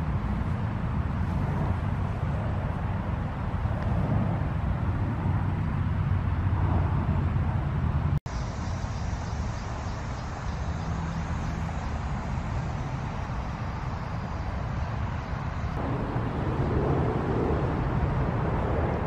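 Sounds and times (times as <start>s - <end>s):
low outdoor rumble: 0.0s - 19.0s.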